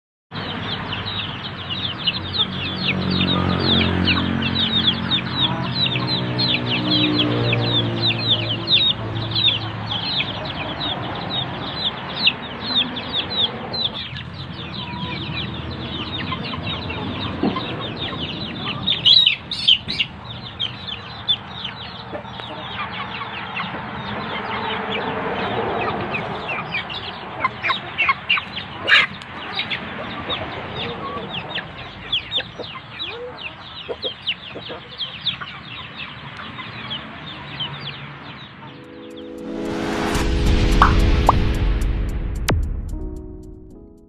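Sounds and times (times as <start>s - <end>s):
chickens clucking: 0.4s - 39.0s
sharp chicken calls: 0.5s - 38.0s
low hum: 38.8s - 44.0s.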